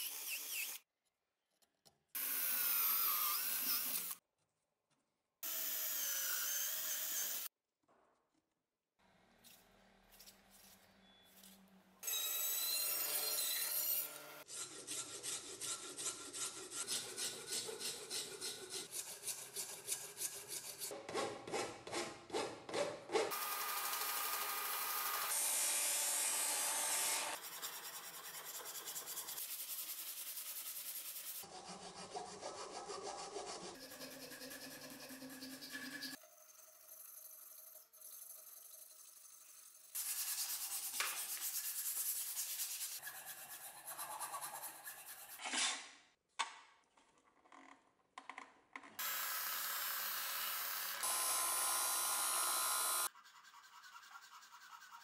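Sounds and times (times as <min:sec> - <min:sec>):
rasp filing wood: 0:14.4 - 0:23.3, 0:52.9 - 0:55.0.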